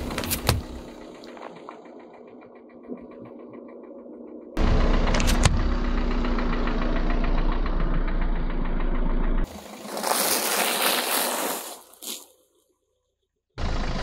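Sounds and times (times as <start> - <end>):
car engine rumbling: 0.0 - 11.7, 13.6 - 14.0
tyre crunching over foil trays: 9.5 - 12.3.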